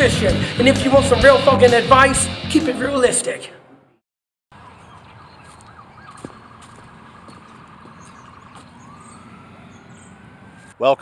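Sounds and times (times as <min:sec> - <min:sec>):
distant siren wailing: 0:04.5 - 0:11.0
outdoor background noise: 0:04.5 - 0:11.0.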